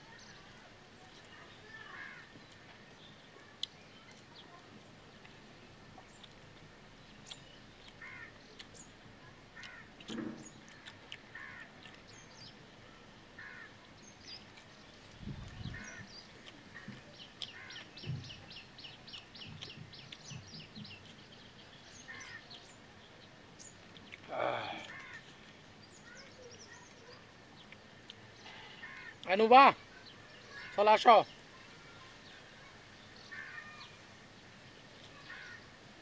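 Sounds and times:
crows cawing: 1.8 - 2.4, 8.0 - 8.4, 9.6 - 10.1, 11.3 - 11.7, 13.4 - 13.8, 16.8 - 17.9, 22.1 - 22.5, 24.4 - 25.3, 28.4 - 29.4, 30.5 - 31.0, 33.3 - 33.9, 35.2 - 35.7.

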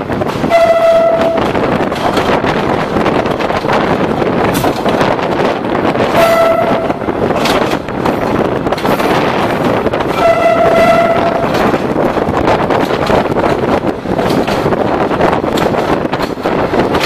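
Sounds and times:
train wheels on track: 0.0 - 17.0
wind on microphone: 0.0 - 17.0
train horn toots: 0.4 - 1.6, 6.1 - 7.2, 10.1 - 11.8.

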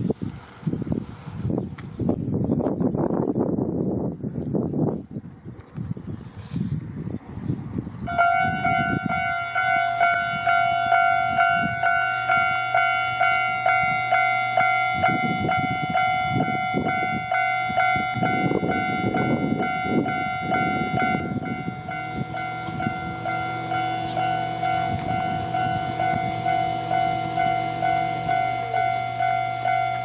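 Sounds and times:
low rumbling noise: 0.0 - 30.0
level-crossing warning bell ringing: 8.1 - 30.0.

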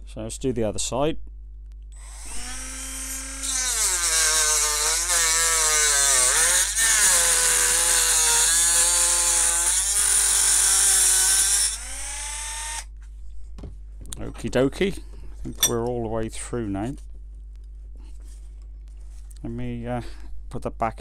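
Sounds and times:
rotary tool motor whine: 2.0 - 12.9.

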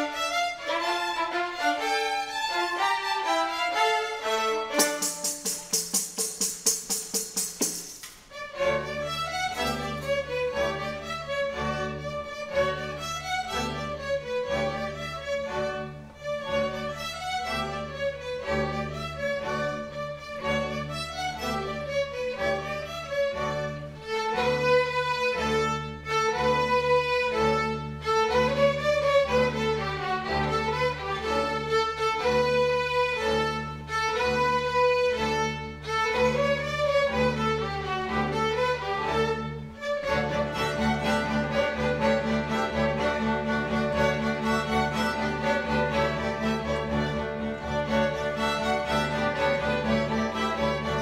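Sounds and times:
string orchestra playing: 0.0 - 51.0
rapid rattle: 4.8 - 8.2.

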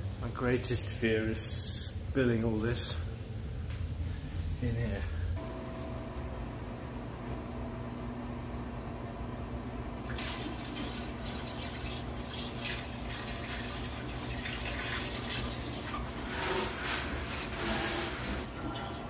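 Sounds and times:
water poured into toilet bowl: 10.0 - 19.0.

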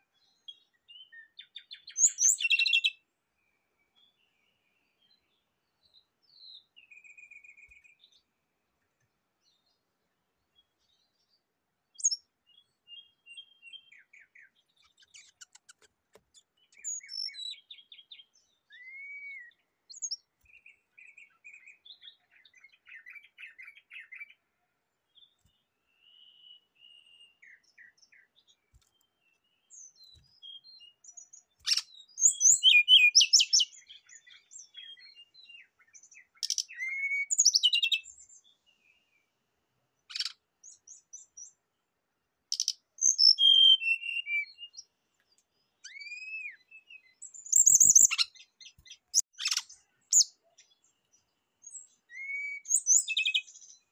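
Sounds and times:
bird chirps and trills: 0.4 - 3.0, 12.0 - 24.4, 25.2 - 39.1, 40.1 - 41.6, 42.5 - 53.9.

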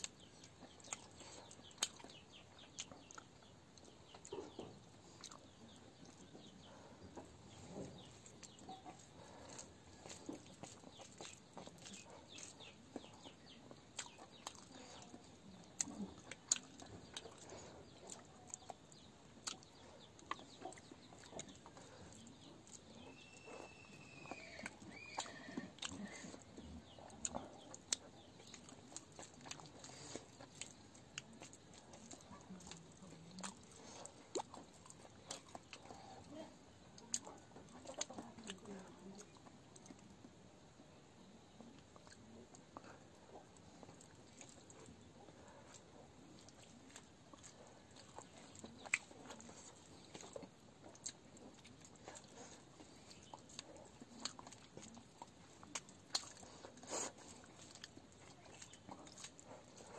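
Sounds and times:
chickens clucking: 0.0 - 24.3
chewing and lip smacks: 0.0 - 59.9.

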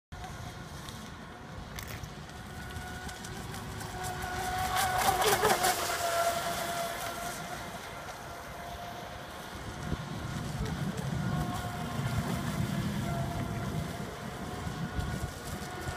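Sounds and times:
rc speedboat motor whining: 0.2 - 15.9.

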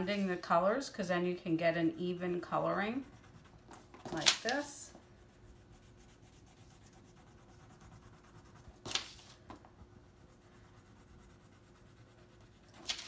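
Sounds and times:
crayon rubbing on paper: 2.1 - 9.3, 9.9 - 13.0
paper scraping on table: 8.8 - 9.5, 12.6 - 13.0.

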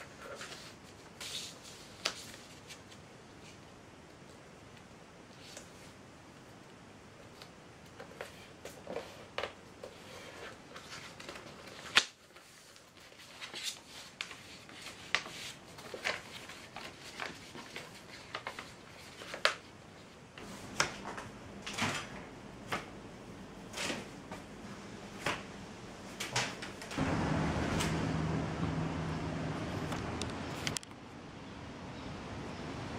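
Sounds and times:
paper folding crackles: 0.0 - 3.6, 7.2 - 23.0.

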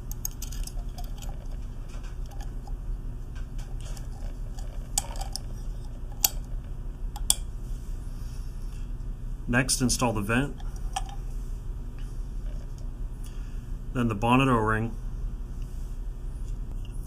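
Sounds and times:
metal parts clicking: 0.0 - 2.7, 3.8 - 6.5
steady low hum: 0.0 - 17.0.

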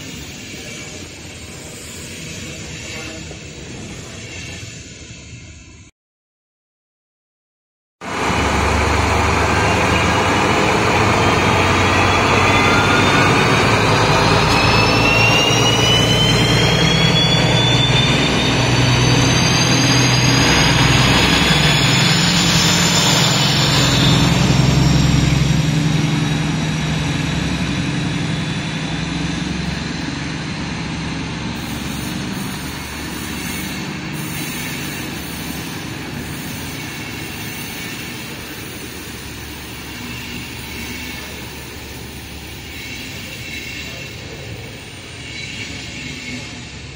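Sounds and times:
diesel locomotive engines under load: 0.0 - 5.9, 8.0 - 46.9
high whistles rising in pitch: 9.4 - 26.4.

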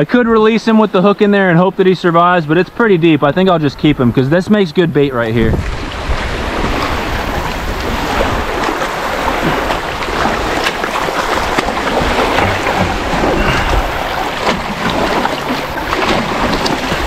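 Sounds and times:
wind rumbling on microphone: 3.3 - 17.0
water sloshing and splashing: 5.2 - 17.0.

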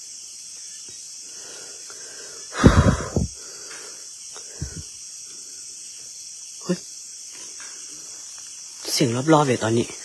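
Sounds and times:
night insects chirring: 0.0 - 10.0
breathy rustling noise: 1.4 - 4.9.

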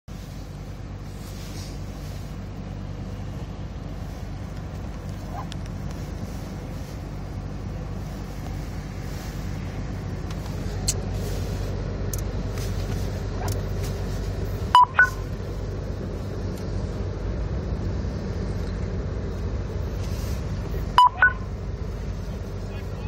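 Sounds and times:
car rumbling through snow: 0.1 - 23.0
two-tone electronic beeps: 14.8 - 15.2, 21.0 - 21.5.

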